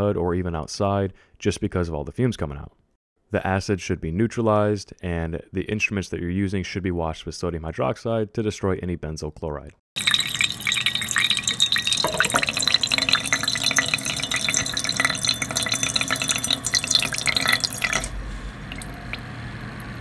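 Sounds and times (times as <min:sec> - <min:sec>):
liquid dripping into glass beaker: 0:10.0 - 0:19.3.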